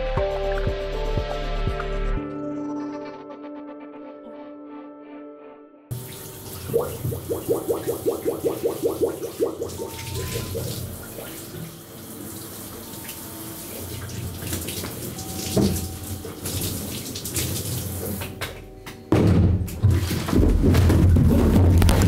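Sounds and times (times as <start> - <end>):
loud music with deep beat: 0.0 - 2.3
shower water running: 5.9 - 18.5.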